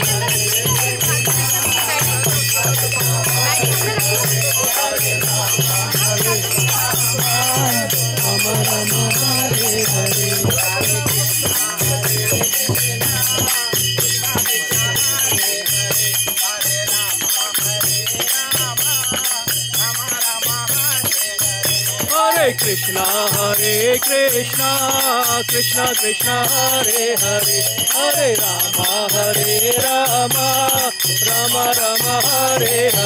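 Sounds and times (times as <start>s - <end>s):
hand drum beating: 0.0s - 16.0s
hand cymbals jingling: 0.0s - 33.0s.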